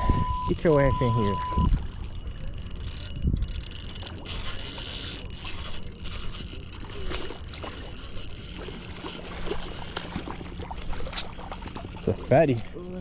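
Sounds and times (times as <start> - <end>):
fish splashing in water: 3.9 - 13.0.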